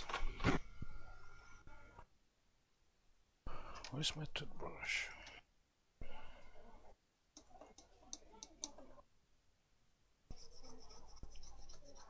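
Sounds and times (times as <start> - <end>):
toothbrush scrubbing circuit board: 10.3 - 12.0.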